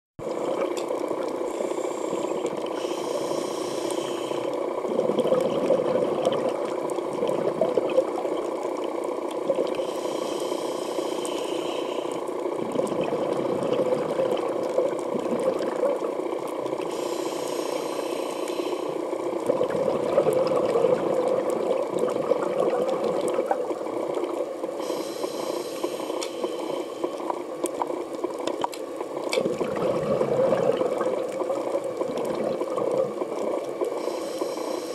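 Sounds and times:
bubbling exhale: 0.2s - 27.4s, 29.4s - 34.9s
underwater drone: 0.2s - 34.9s
regulator hissing inhale: 1.3s - 4.8s, 9.6s - 12.4s, 16.8s - 19.3s, 23.7s - 27.5s, 33.9s - 34.9s.

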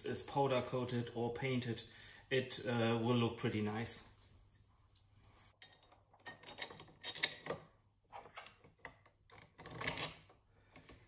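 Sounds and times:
metal parts clicking and rattling: 4.9s - 7.6s, 9.3s - 10.4s.

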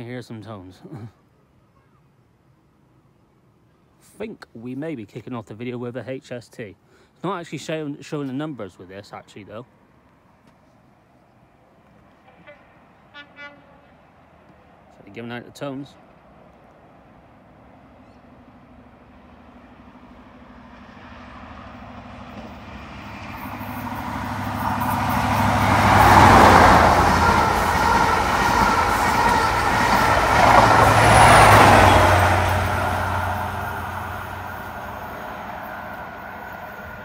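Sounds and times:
train passing at speed: 11.9s - 37.0s.

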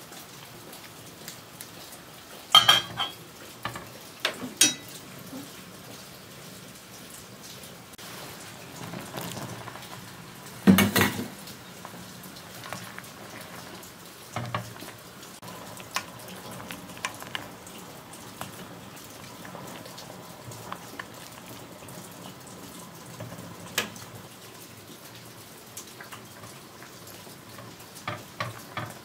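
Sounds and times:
broth bubbling in a pot: 0.0s - 29.0s.

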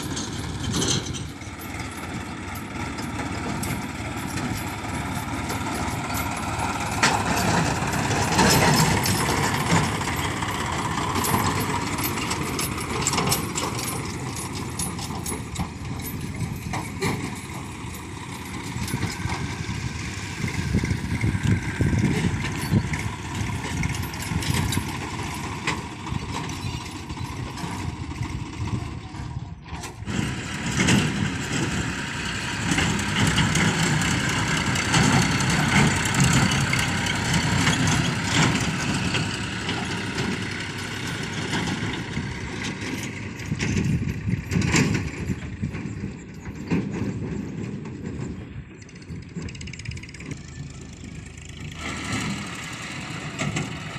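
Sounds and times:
tractor diesel engine under load: 0.0s - 53.9s.

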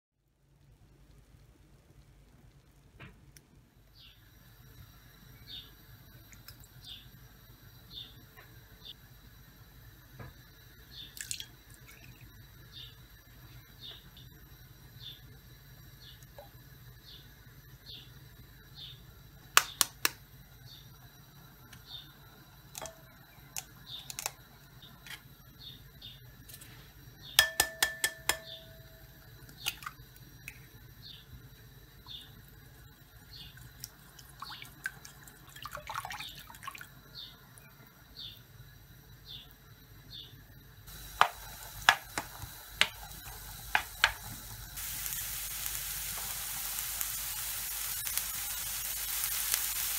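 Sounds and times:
clinks on a glass bowl: 27.4s - 28.9s
wooden spoon stirring and tapping: 40.9s - 44.6s
onions sizzling in frying pan: 40.9s - 49.9s.

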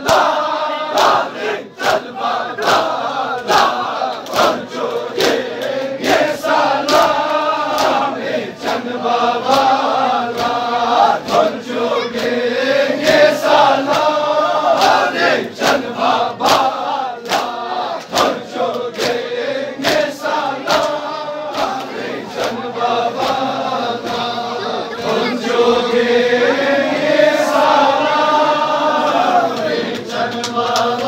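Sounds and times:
hands slapping chests: 0.0s - 11.6s, 13.0s - 24.3s, 29.0s - 31.0s
men chanting a lament: 0.0s - 31.0s.

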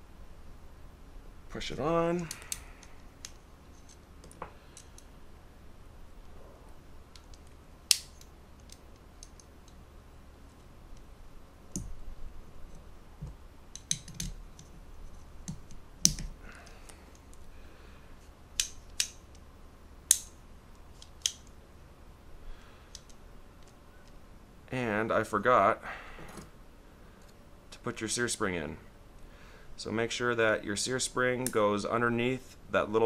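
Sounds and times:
sharp clicks of pistol parts: 2.3s - 5.1s, 7.1s - 9.8s, 13.7s - 14.7s, 18.6s - 19.4s, 20.1s - 20.4s, 21.0s - 21.6s, 22.9s - 23.8s.

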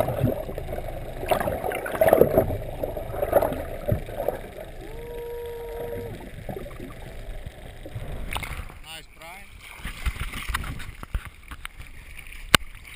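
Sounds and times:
steady tone: 0.0s - 9.5s
underwater water sloshing: 0.0s - 12.9s.

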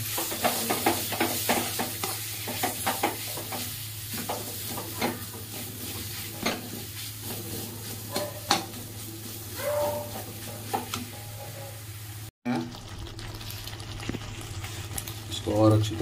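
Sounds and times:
spatula scraping a pan: 0.0s - 11.9s
paste sizzling in oil: 0.0s - 16.0s.

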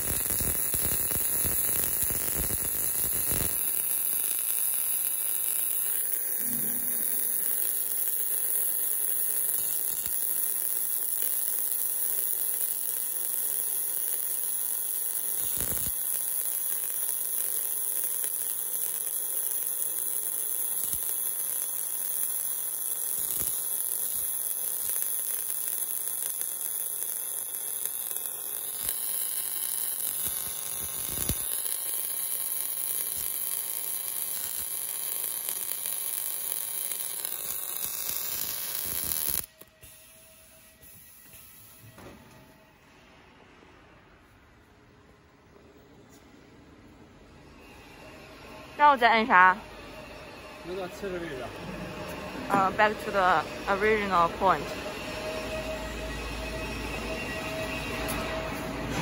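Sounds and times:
hum: 0.0s - 10.8s
welding arc hissing: 0.0s - 42.0s, 50.4s - 58.8s.

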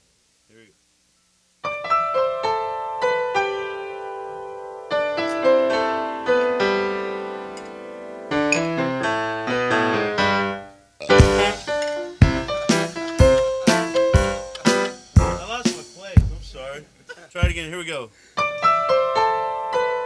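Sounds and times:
piano music: 1.6s - 16.8s, 18.4s - 20.0s.

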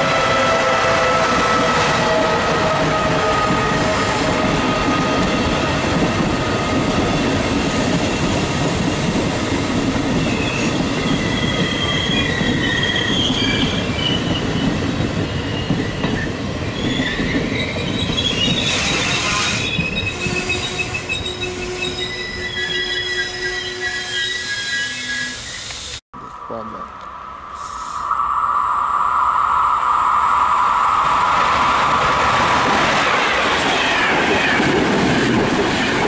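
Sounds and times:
train wheels rumbling on rails: 0.0s - 24.7s, 30.1s - 36.0s
high metallic squealing: 10.2s - 14.6s, 15.3s - 26.0s
hiss burst: 27.5s - 31.7s.

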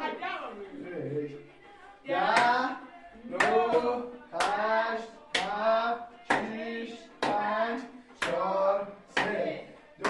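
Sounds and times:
hand claps: 2.2s - 2.7s, 3.3s - 10.0s.

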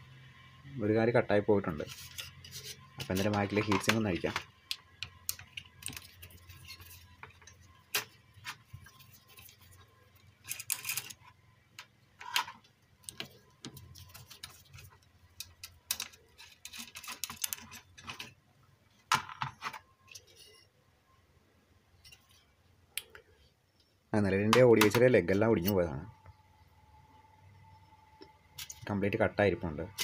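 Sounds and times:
screwdriver scraping on metal: 1.8s - 4.4s, 5.3s - 9.8s, 10.4s - 11.3s, 14.0s - 18.3s, 20.1s - 20.7s.

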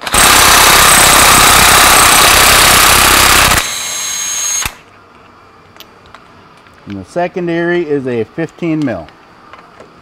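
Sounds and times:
tool spinning with high whine: 0.0s - 4.9s.

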